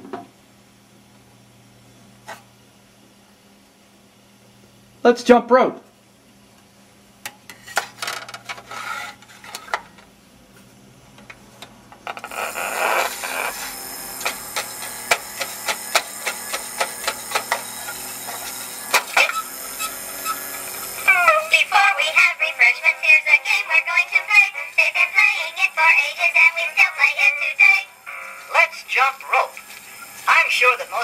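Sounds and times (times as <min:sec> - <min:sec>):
record surface hiss and crackle: 0:07.8 - 0:13.7, 0:21.1 - 0:31.0.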